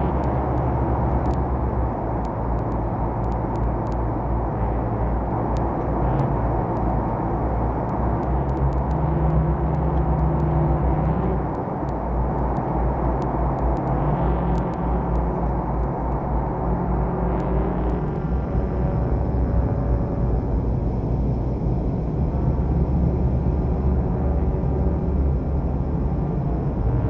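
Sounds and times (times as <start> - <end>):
propeller aircraft engines droning: 0.0 - 27.0
faint clicks: 0.1 - 1.5, 2.2 - 4.1, 7.8 - 16.2.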